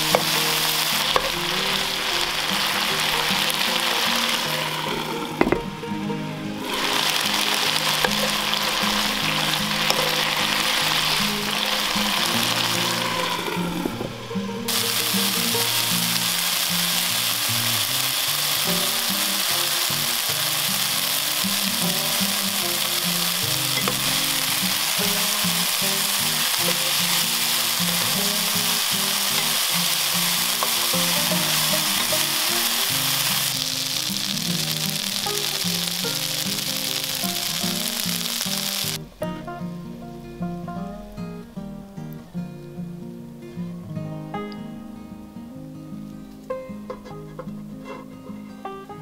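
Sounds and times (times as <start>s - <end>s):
food sizzling in a pan: 0.0s - 5.8s, 6.6s - 39.4s.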